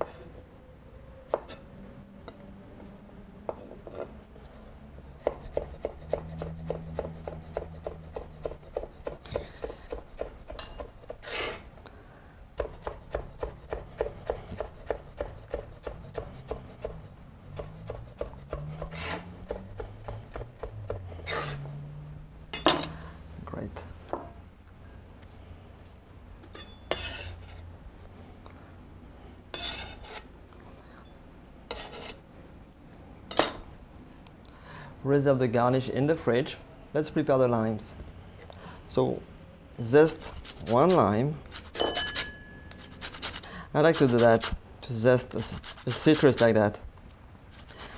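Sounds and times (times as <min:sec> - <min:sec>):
knife chopping on wooden board: 0:05.2 - 0:11.3, 0:12.6 - 0:21.5
knife scraping board: 0:05.2 - 0:11.7, 0:12.6 - 0:21.6, 0:26.9 - 0:27.6, 0:29.5 - 0:30.3, 0:31.7 - 0:32.2, 0:40.2 - 0:44.6, 0:45.4 - 0:46.6, 0:47.5 - 0:47.9.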